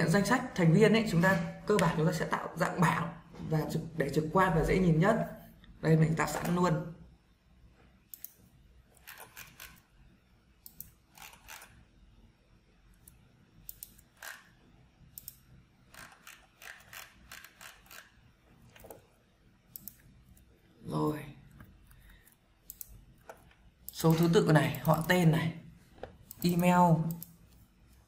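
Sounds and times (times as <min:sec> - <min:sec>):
mouse and keyboard clicking: 0:08.1 - 0:08.4, 0:10.6 - 0:11.7, 0:13.0 - 0:14.5, 0:15.2 - 0:18.1, 0:19.7 - 0:20.1, 0:21.6 - 0:25.2.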